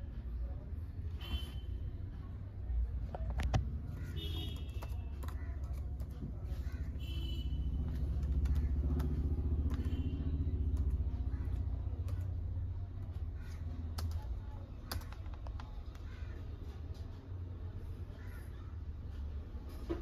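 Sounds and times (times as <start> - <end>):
laptop keys typing clicks: 4.4 - 6.7, 7.9 - 16.1
passing motor traffic rumble: 5.5 - 14.8.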